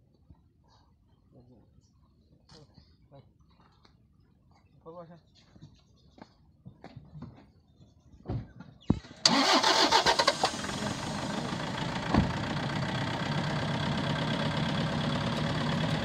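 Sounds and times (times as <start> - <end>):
engine starting and running: 9.2 - 16.0.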